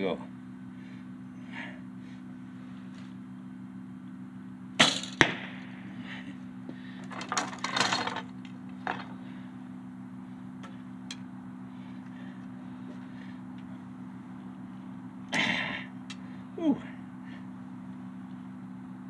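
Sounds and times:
arrow rattling in quiver: 0:04.8 - 0:05.6.

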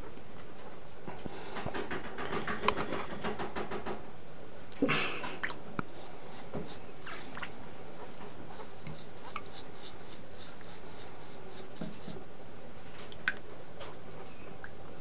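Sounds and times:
toothbrush scrubbing quills: 0:05.9 - 0:07.4, 0:08.3 - 0:12.2.

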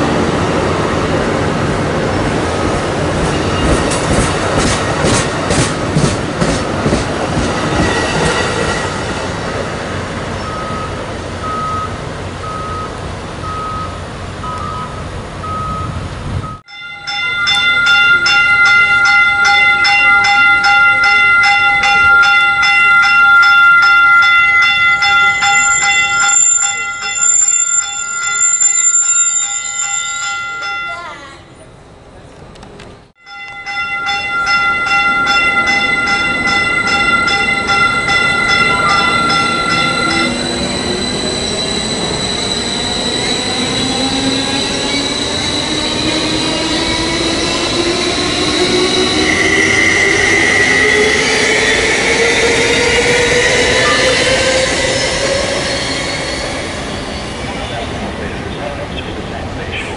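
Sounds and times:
electric train whine: 0:00.0 - 0:30.8, 0:33.3 - 0:59.8
fast even train clatter: 0:03.2 - 0:09.3
train wheels clicking on joints: 0:03.6 - 0:08.7
faint repeating beep: 0:10.4 - 0:16.6.

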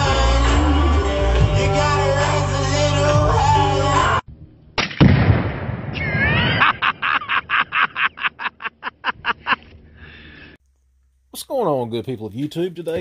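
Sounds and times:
music: 0:00.0 - 0:04.7
loud explosion with rumble: 0:05.0 - 0:06.3.

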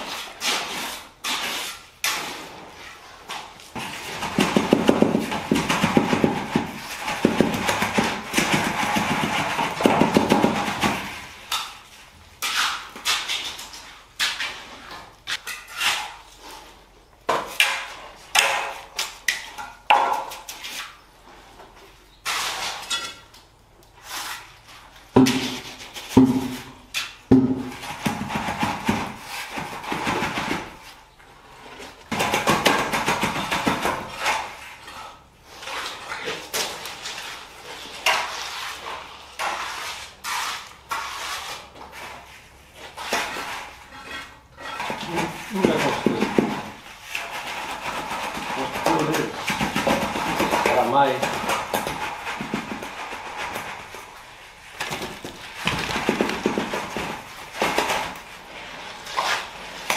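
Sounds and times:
trowel scraping wet concrete: 0:00.0 - 0:59.9
knocks: 0:27.3 - 0:29.0.

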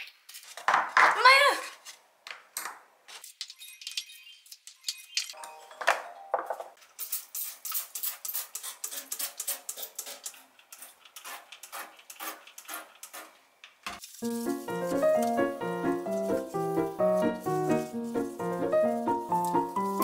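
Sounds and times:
music: 0:05.4 - 0:06.7, 0:14.2 - 0:20.0.

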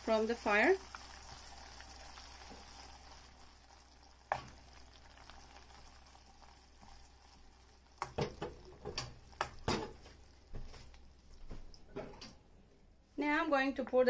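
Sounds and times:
caramel bubbling and sizzling: 0:00.0 - 0:12.0
sharp knocks on a pan: 0:08.0 - 0:10.0.

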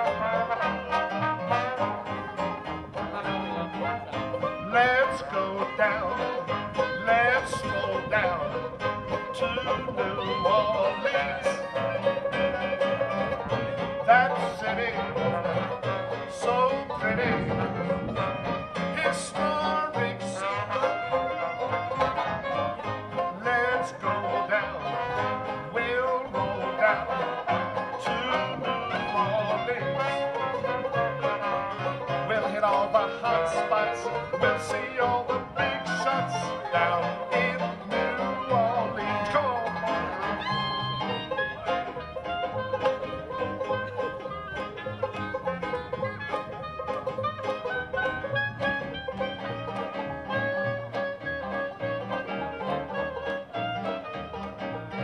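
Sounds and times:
banjo playing: 0:00.0 - 0:55.0
keyboard accompaniment: 0:00.0 - 0:55.0
man singing: 0:03.0 - 0:12.1, 0:13.9 - 0:22.5, 0:23.1 - 0:41.0.

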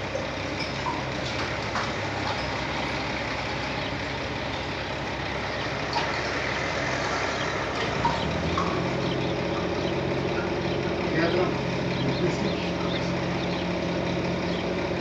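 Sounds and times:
outdoor background noise: 0:00.0 - 0:15.0
truck engine idling: 0:00.0 - 0:15.0.

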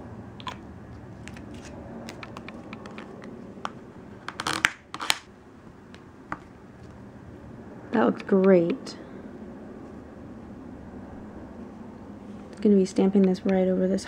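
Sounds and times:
plastic card scraping metal plate: 0:04.2 - 0:05.2.

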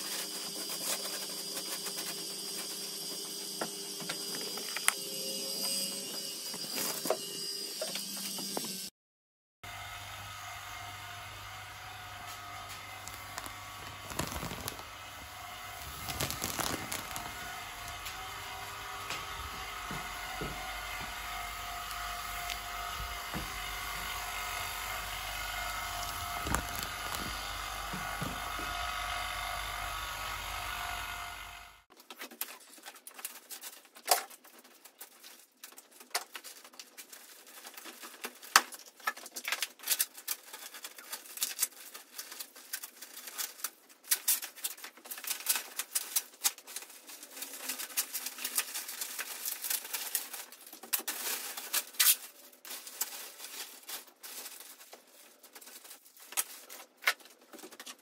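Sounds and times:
vacuum pump humming: 0:09.7 - 0:31.8
crackling and crinkling clicks: 0:12.7 - 0:15.0, 0:15.6 - 0:18.2, 0:25.9 - 0:27.6, 0:31.9 - 0:58.0.

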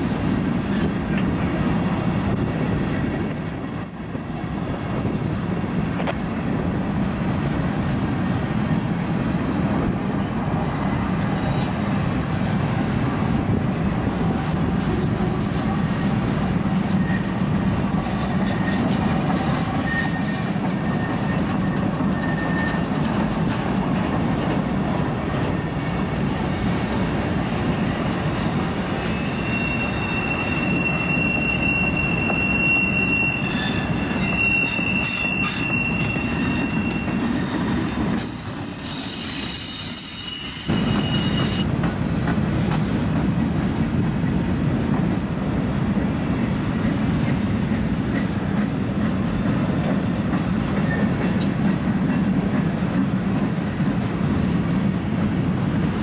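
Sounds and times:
train wheels rumbling on track: 0:00.0 - 0:56.0
high wheel squeal: 0:02.2 - 0:17.8, 0:18.4 - 0:23.1, 0:27.3 - 0:41.7.

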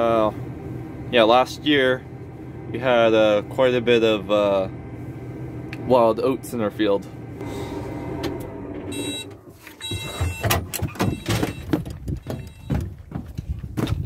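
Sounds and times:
tractor engine running: 0:00.0 - 0:14.0
short electronic beep: 0:08.9 - 0:12.7
cab door knocks and clunks: 0:09.9 - 0:14.0
footsteps on steps: 0:11.7 - 0:14.0.

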